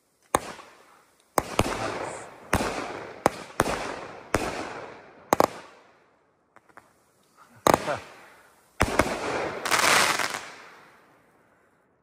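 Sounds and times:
crackle of bursting stars: 0.0s - 12.0s
firework bangs: 0.3s - 5.9s, 7.5s - 11.3s.

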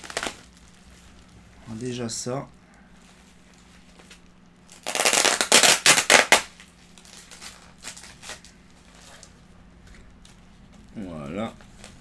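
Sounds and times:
packing tape being pulled: 0.0s - 0.7s, 4.0s - 9.3s
bubble wrap crackling: 0.0s - 12.0s.

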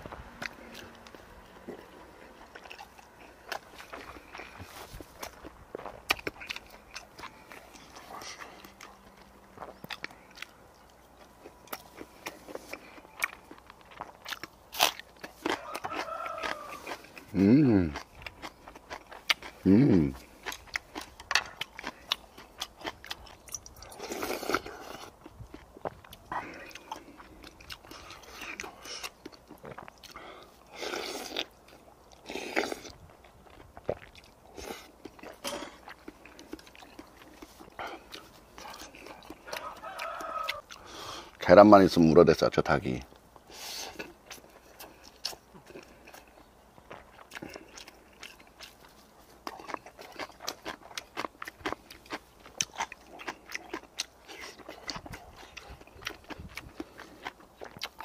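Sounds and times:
chewing and crunching food: 0.0s - 58.0s.

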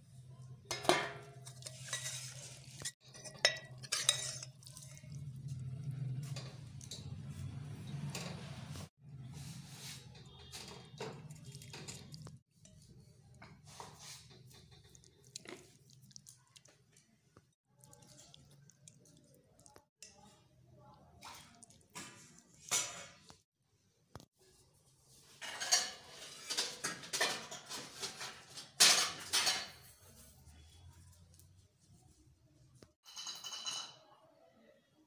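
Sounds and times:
metal spoon scraping steel plate: 0.8s - 5.1s.

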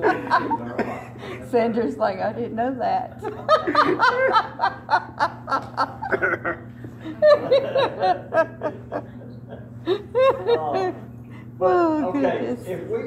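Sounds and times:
group laughing: 0.0s - 1.4s, 3.2s - 11.2s.

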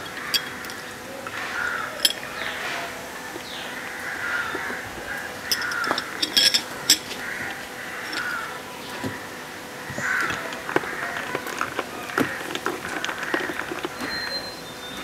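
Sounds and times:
crows cawing: 0.0s - 13.8s.

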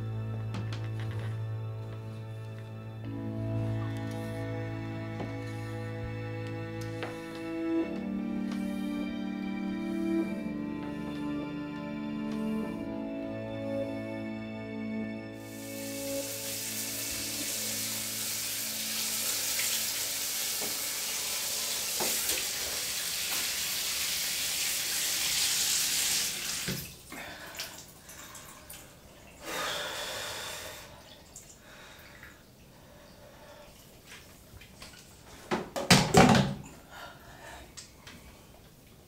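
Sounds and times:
shower head spraying water: 15.4s - 26.9s
water gushing: 15.4s - 29.4s
splashes in bath water: 15.6s - 29.4s.

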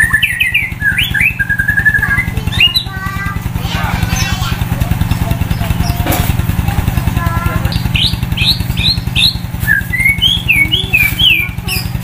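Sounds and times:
bird singing whistled notes: 0.0s - 2.9s, 7.7s - 12.0s
motorcycle engine running: 0.0s - 12.0s.

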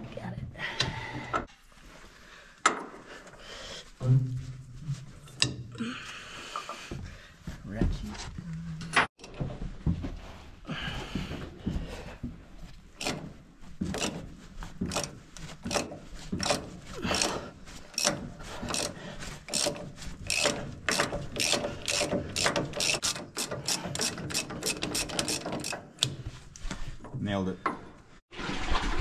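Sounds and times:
ratchet wrench clicking: 19.5s - 25.8s.

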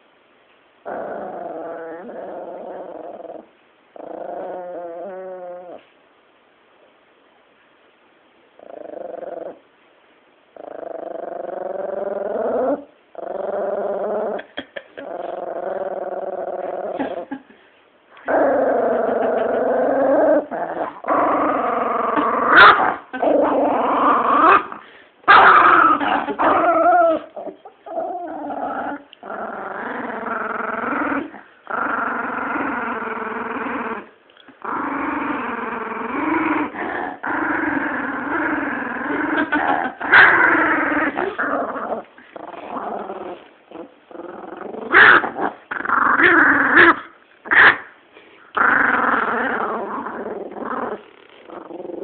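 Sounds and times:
small dog growling: 0.8s - 5.9s, 8.6s - 9.6s, 10.6s - 17.6s, 18.2s - 47.9s, 48.5s - 52.0s.

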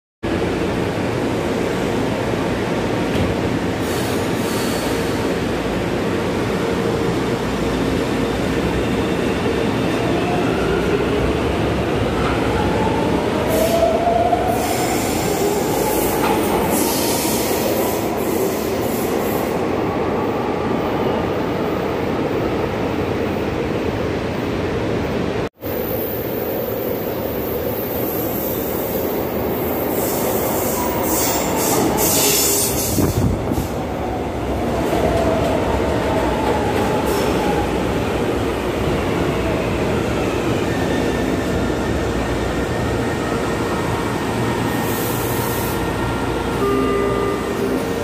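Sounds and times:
high-pitched hiss and squeal: 29.8s - 33.2s.

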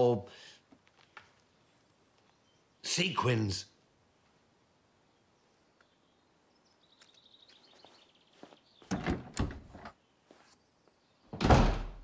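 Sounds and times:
door shutting thud: 8.9s - 9.8s, 11.3s - 12.0s
door knocks: 11.4s - 12.0s.

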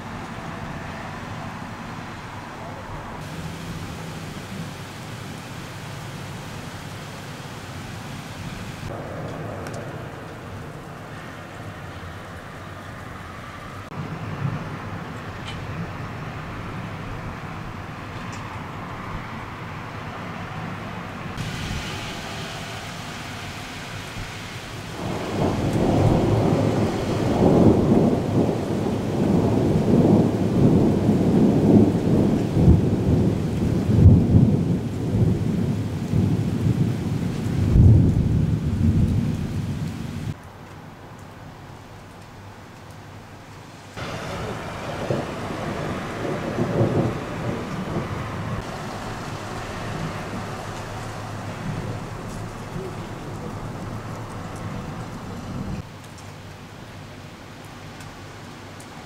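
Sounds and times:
rain hissing: 3.2s - 14.2s, 21.4s - 40.4s, 41.2s - 59.0s
rolling thunder: 8.2s - 11.8s, 24.1s - 40.4s, 44.0s - 55.9s
thunder cracks: 8.6s - 11.2s, 24.9s - 40.4s, 44.0s - 55.9s.

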